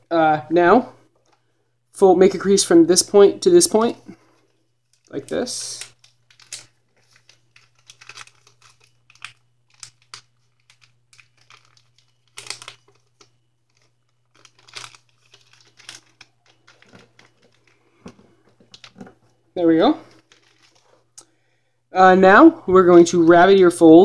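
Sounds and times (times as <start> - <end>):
paper rustling and crinkling: 4.4 - 19.4, 20.0 - 21.2.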